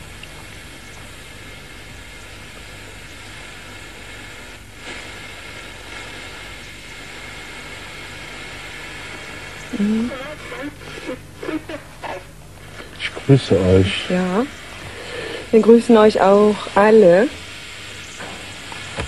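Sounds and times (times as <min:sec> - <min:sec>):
low mains hum: 0:00.0 - 0:19.0
white noise hiss: 0:00.0 - 0:19.0.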